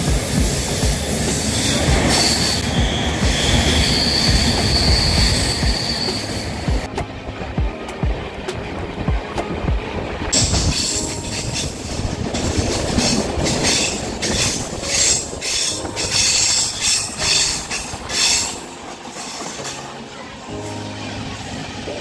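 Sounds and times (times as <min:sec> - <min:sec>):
train wheels squealing on rails: 0:00.0 - 0:06.9, 0:10.4 - 0:21.8
train rumble and clatter: 0:00.0 - 0:22.0.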